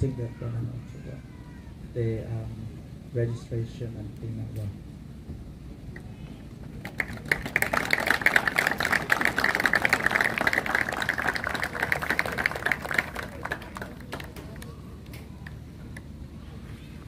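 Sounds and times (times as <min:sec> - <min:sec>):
audience applauding: 0:06.8 - 0:14.7.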